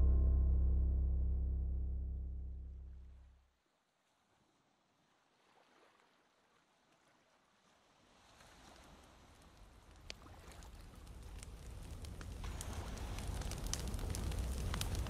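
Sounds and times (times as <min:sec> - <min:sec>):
fire crackling: 0:09.4 - 0:15.0.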